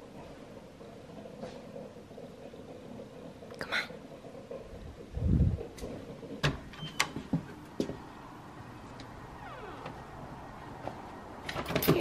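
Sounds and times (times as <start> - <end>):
glass door opening: 6.4 - 7.4, 9.0 - 12.0.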